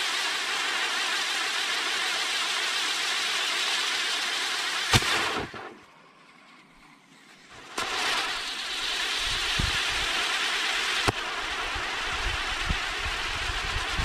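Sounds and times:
sharp firework crack: 0.0s - 6.0s, 7.6s - 14.0s
spinning firework hissing: 0.0s - 14.0s
firework pop: 4.9s - 5.8s.

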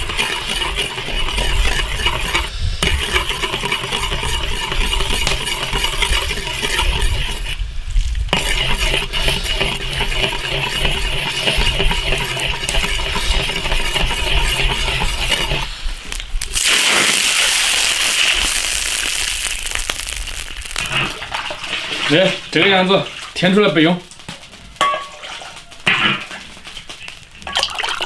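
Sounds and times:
sugar bubbling and crackling in oil: 0.0s - 23.5s, 26.1s - 28.0s
hissing sizzle: 0.0s - 24.8s
metal ladle clinking against wok: 24.8s - 25.4s.

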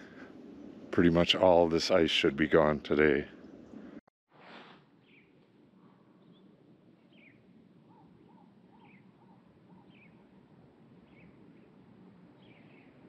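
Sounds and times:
lower run of bird notes: 5.0s - 13.0s
high downward-slurred bird chirp: 6.2s - 10.4s, 12.4s - 13.0s.

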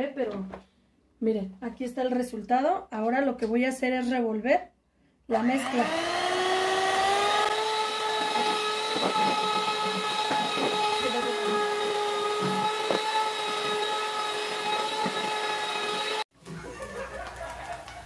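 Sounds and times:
electric hand mixer whining: 5.4s - 16.3s.

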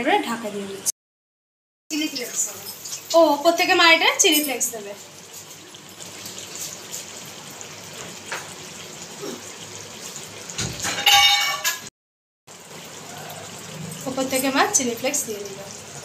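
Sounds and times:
sauce bubbling in a pan: 1.9s - 10.9s, 12.5s - 16.0s
metal clang against pan: 10.6s - 11.9s.

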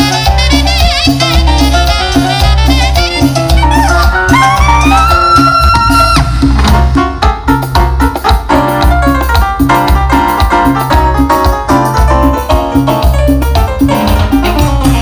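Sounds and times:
drums: 0.0s - 15.0s
electronic keyboard riff: 0.0s - 15.0s
pulsing bass line: 0.0s - 15.0s.

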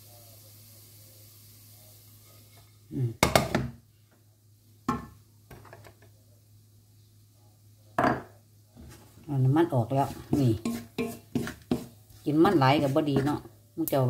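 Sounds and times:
wooden spatula knocking on wok: 10.3s - 12.0s.

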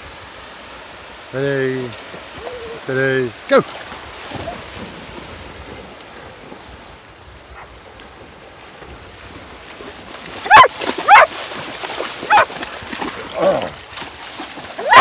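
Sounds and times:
sea surf splashing: 0.0s - 15.0s.

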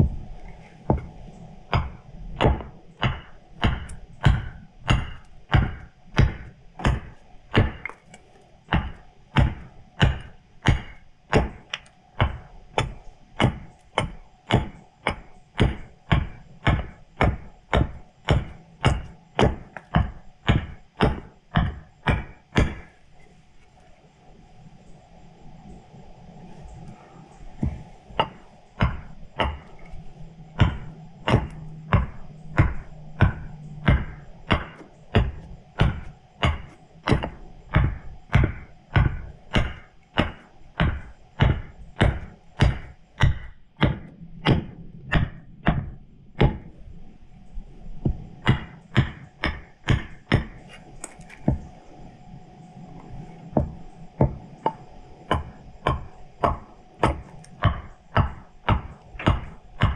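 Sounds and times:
tool chopping wood: 0.0s - 23.0s, 27.6s - 46.8s, 48.0s - 51.7s, 53.6s - 59.9s.

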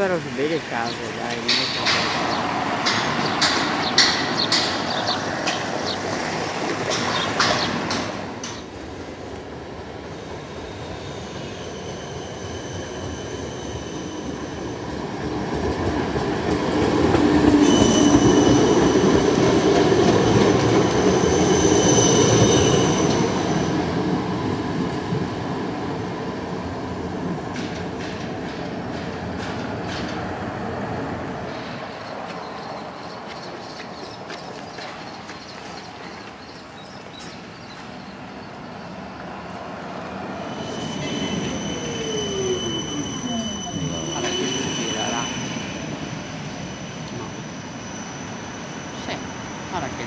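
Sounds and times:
tram rumbling on rails: 0.0s - 50.0s
wheels clacking over track: 0.9s - 8.7s
high squeal of steel wheels: 11.0s - 14.8s, 17.6s - 19.6s, 20.4s - 23.8s, 40.3s - 50.0s.

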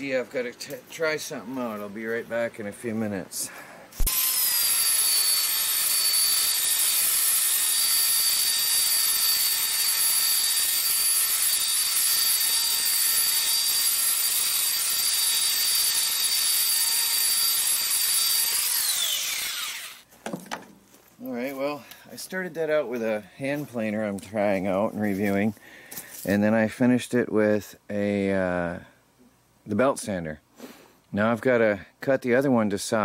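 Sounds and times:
belt sander whining: 4.0s - 20.1s.

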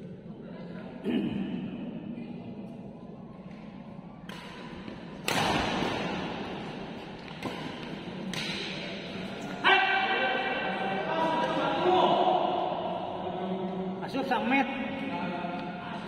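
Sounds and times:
rackets hitting shuttlecock: 3.4s - 9.3s.

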